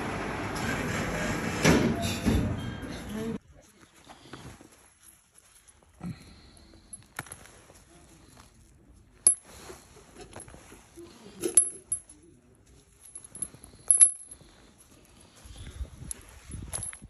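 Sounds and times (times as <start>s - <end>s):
metal casings clinking into helmet: 9.2s - 9.5s, 11.4s - 12.2s, 12.9s - 14.6s, 16.5s - 17.0s.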